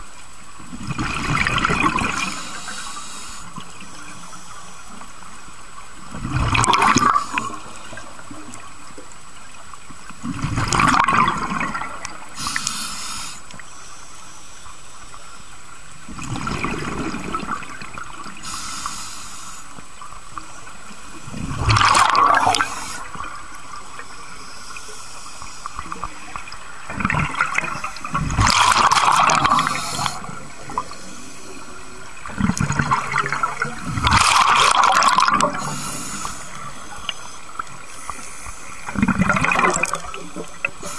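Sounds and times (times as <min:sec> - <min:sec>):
gurgling exhaled bubbles: 0:00.7 - 0:02.4, 0:06.1 - 0:08.7, 0:10.2 - 0:12.7, 0:16.1 - 0:18.5, 0:21.2 - 0:23.5, 0:25.8 - 0:36.7, 0:38.8 - 0:40.9
hissing regulator inhalations: 0:02.2 - 0:03.6, 0:12.4 - 0:14.7, 0:18.4 - 0:19.8, 0:22.4 - 0:23.3, 0:29.4 - 0:31.7, 0:35.6 - 0:38.9.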